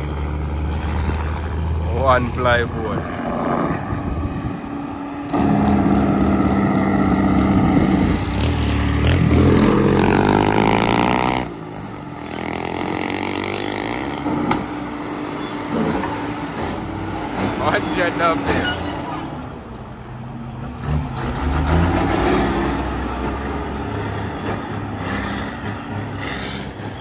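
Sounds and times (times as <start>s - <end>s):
diesel truck engine labouring: 0.0s - 27.0s
motorcycle passing: 2.5s - 14.7s.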